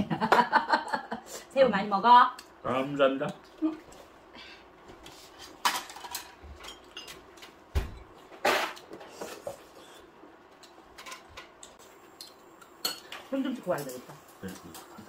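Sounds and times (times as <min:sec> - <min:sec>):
utensils clinking on metal tray: 0:05.6 - 0:07.2.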